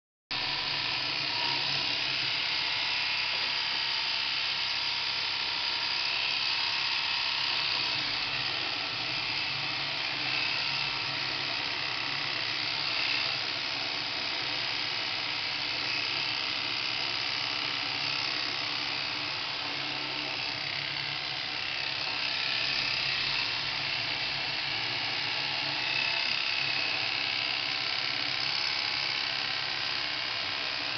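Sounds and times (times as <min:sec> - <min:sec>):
electric shears clipping wool: 0:00.3 - 0:30.9.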